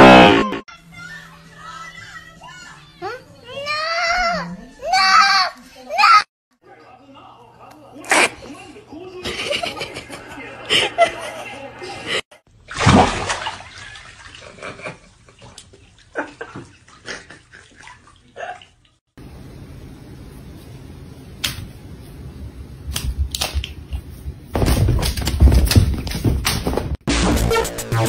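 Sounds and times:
bath water sloshing and splashing: 0:12.5 - 0:19.0
steady low hiss: 0:19.2 - 0:23.0.

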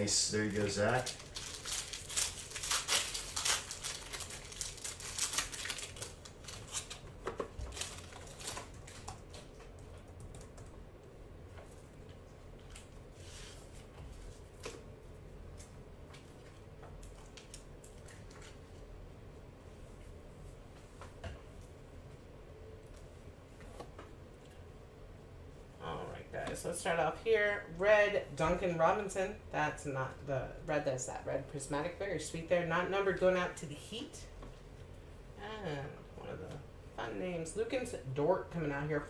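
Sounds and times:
foil pack crinkling: 0:00.3 - 0:09.5.

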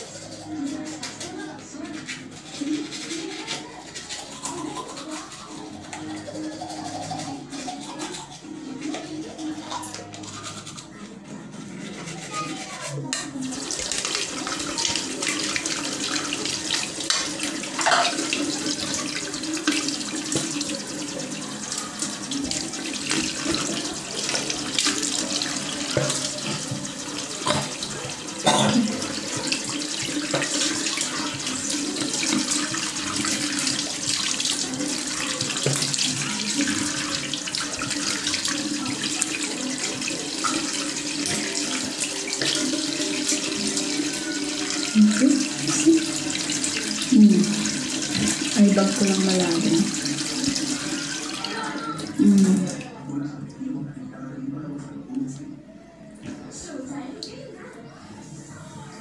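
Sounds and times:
tap water running into sink: 0:12.2 - 0:53.0.

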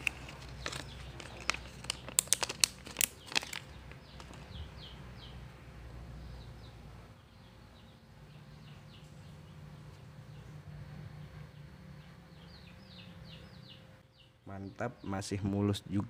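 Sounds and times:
plastic bag crinkling: 0:00.0 - 0:04.4
small bird chirping: 0:00.2 - 0:02.2, 0:03.0 - 0:05.4, 0:06.2 - 0:15.1.

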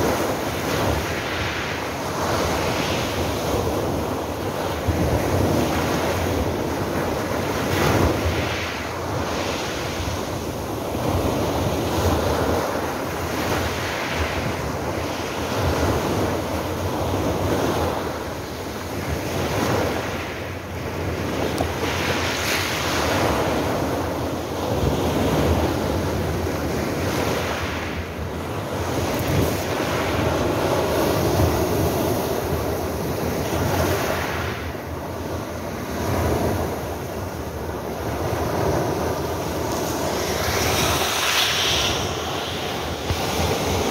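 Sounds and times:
waves washing over pebble beach: 0:35.4 - 0:43.9.

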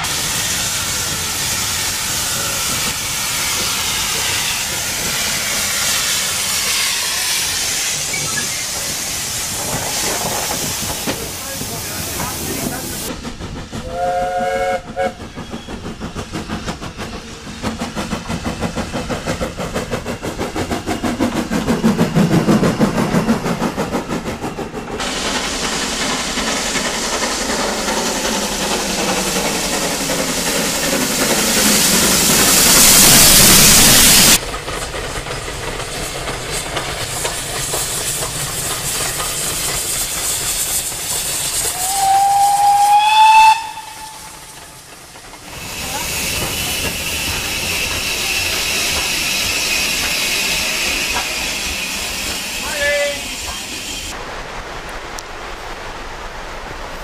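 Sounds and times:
steam engine chuffing: 0:00.0 - 0:54.2
rushing hiss of steam: 0:00.0 - 0:57.0
train running past: 0:00.0 - 0:57.0
steam whistle: 0:13.9 - 0:15.2, 0:41.7 - 0:44.5.

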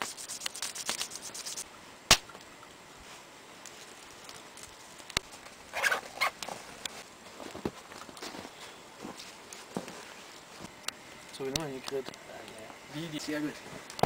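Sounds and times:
wood fire crackling: 0:00.0 - 0:14.0
sharp wood snap: 0:02.1 - 0:02.4
rustling of wood: 0:02.3 - 0:12.8.

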